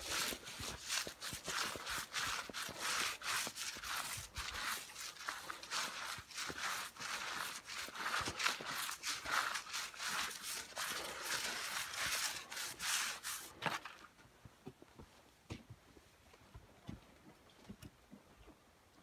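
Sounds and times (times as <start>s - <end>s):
dry straw rustling: 0.0s - 13.8s.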